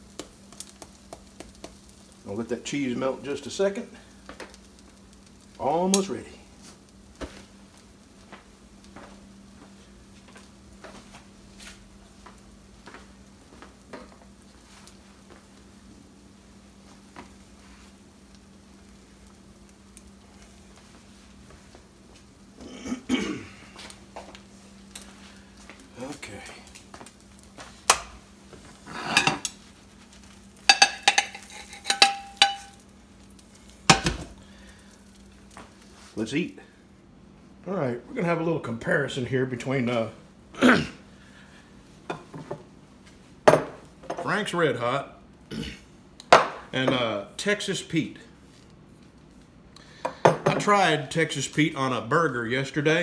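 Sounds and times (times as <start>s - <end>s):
omelette sizzling with pops: 0.0s - 37.5s
steady low hum: 0.0s - 52.4s
skillet scraping on ceramic plate: 28.9s - 29.5s, 30.7s - 32.7s
pan knocking on stove: 30.7s - 32.8s, 33.9s - 34.3s.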